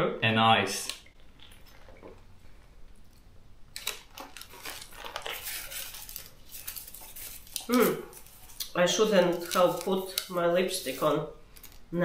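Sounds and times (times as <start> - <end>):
plastic wrapper crinkling: 3.7 - 12.0.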